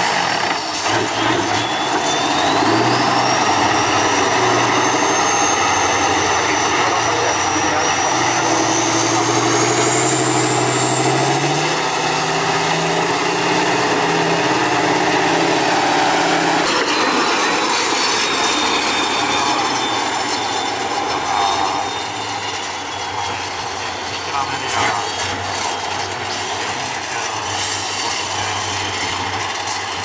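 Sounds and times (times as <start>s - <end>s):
diesel truck engine working hard: 0.0s - 30.0s
high whine rising in pitch: 1.5s - 24.0s.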